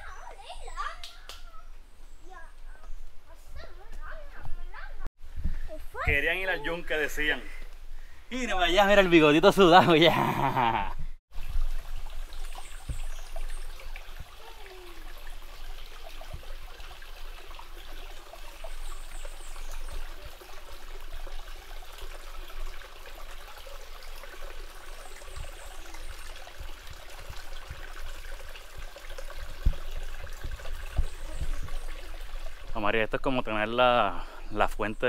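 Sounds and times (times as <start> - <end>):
stream water over rocks: 8.6 - 33.8.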